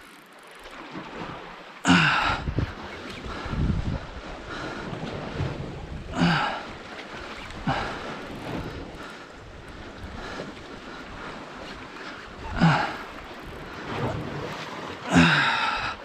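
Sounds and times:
sea waves washing ashore: 0:00.0 - 0:16.0
wind buffeting microphone: 0:02.2 - 0:14.6.

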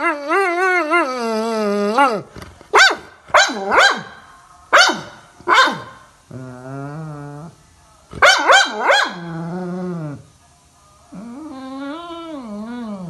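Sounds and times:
dog howling: 0:11.1 - 0:13.0.

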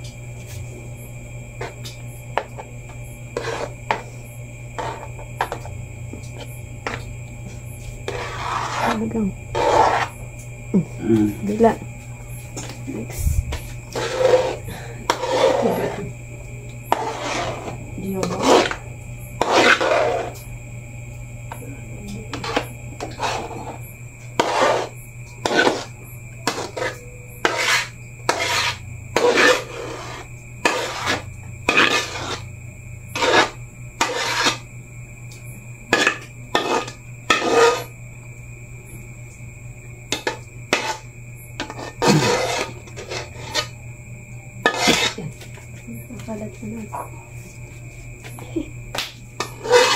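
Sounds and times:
low hum: 0:00.0 - 0:24.2
spoon scraping pudding: 0:03.4 - 0:04.2, 0:04.8 - 0:05.7, 0:07.8 - 0:10.2, 0:13.5 - 0:16.1, 0:16.9 - 0:18.8, 0:19.4 - 0:20.4, 0:22.3 - 0:32.5, 0:33.1 - 0:34.7, 0:35.9 - 0:37.9, 0:40.1 - 0:43.7, 0:44.6 - 0:45.6, 0:49.4 - 0:49.9.

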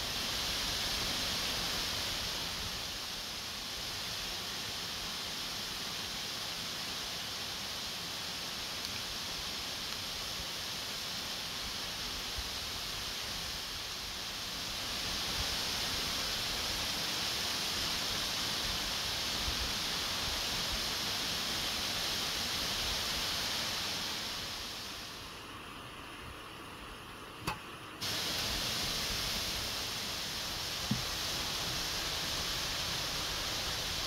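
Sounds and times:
waterfall rushing: 0:00.0 - 0:25.3, 0:28.0 - 0:34.0.

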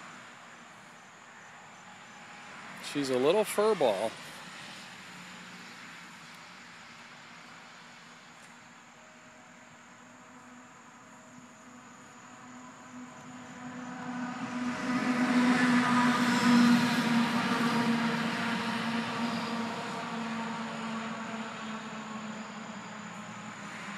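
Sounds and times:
vehicle passing by: 0:12.7 - 0:23.9.

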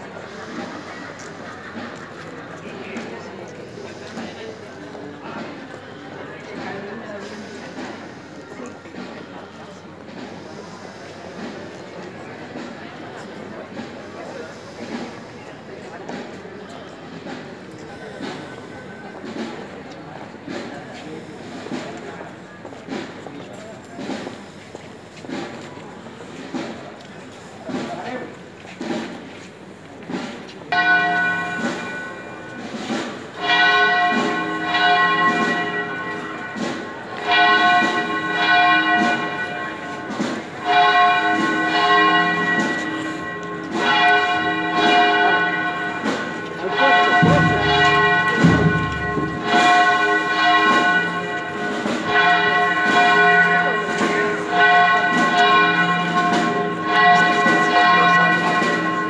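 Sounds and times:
church bells ringing: 0:30.7 - 0:59.0.

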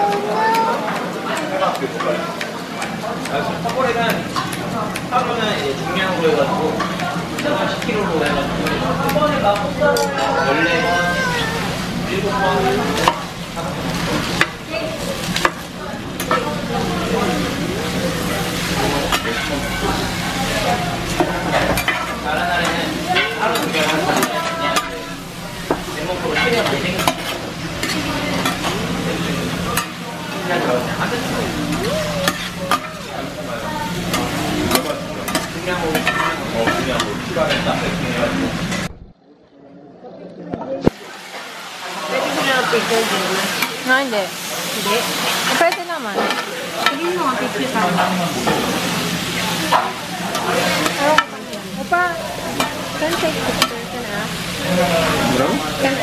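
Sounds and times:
food sizzling on griddle pan: 0:00.0 - 0:38.8, 0:40.9 - 0:56.0
spatulas scraping a pan: 0:17.3 - 0:33.0, 0:34.0 - 0:37.9.

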